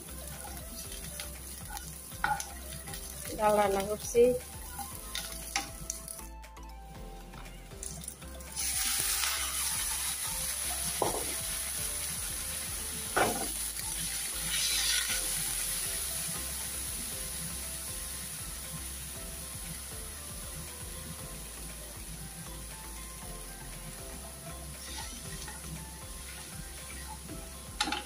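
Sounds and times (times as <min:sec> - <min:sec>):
prawns sizzling in oil: 0:00.0 - 0:06.3, 0:07.7 - 0:28.0
wooden spatula knocking on pan: 0:01.7 - 0:02.5, 0:10.9 - 0:11.4, 0:13.1 - 0:13.6.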